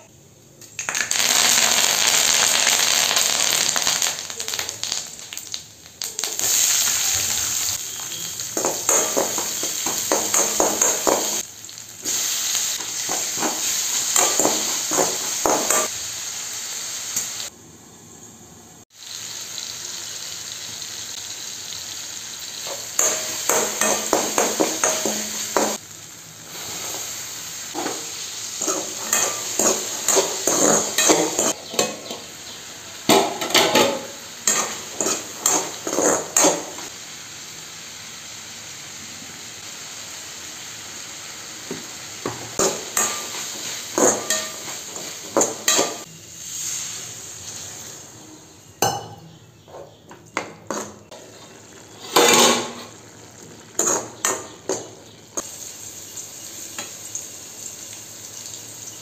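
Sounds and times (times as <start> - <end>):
vegetables sizzling in oil: 0.7 - 59.0
metal spatula scraping pan: 33.2 - 36.8.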